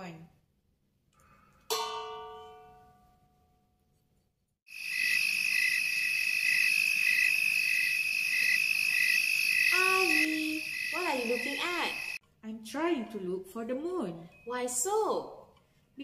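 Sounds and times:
crickets trilling and chirping: 0:04.7 - 0:12.2.

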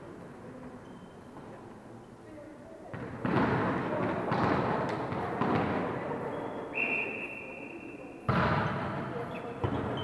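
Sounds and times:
volleyball hit: 0:02.9 - 0:05.9, 0:08.3 - 0:09.0
referee's whistle: 0:06.5 - 0:07.9.

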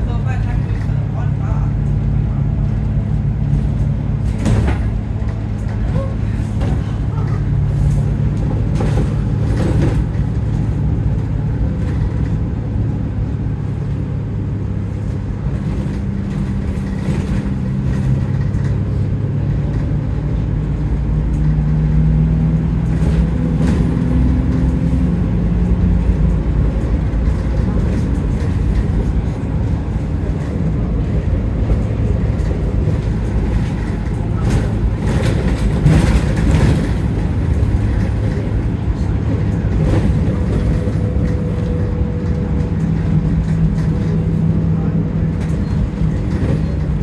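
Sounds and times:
bus engine accelerating: 0:00.0 - 0:47.0
bus bodywork knocks: 0:04.2 - 0:07.0, 0:32.2 - 0:38.5.

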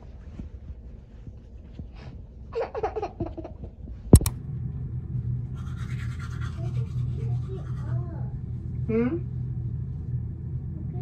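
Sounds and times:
sharp click: 0:04.2 - 0:04.4
toothbrush scrubbing teeth: 0:05.6 - 0:08.3.

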